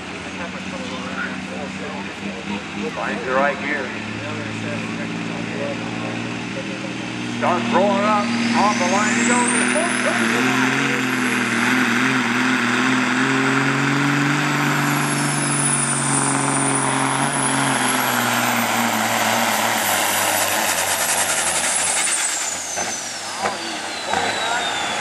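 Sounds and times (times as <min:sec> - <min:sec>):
diesel truck engine at full throttle: 0:00.0 - 0:25.0.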